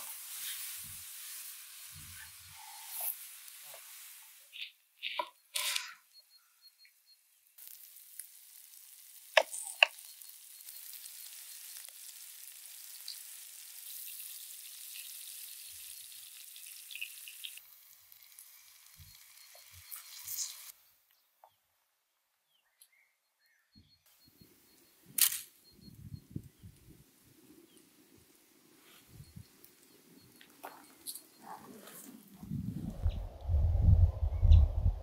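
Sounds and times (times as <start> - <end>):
food sizzling in a frying pan: 0.0 - 4.7, 7.6 - 20.8.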